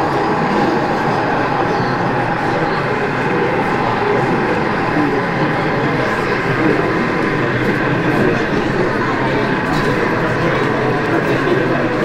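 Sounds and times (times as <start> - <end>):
model train running: 0.0 - 12.0
murmur of crowd in hall: 0.0 - 12.0.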